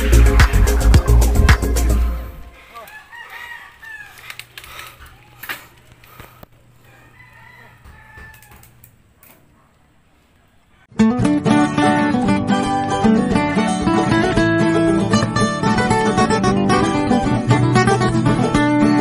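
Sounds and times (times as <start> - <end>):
rooster crowing: 2.5 - 5.4, 6.8 - 8.9.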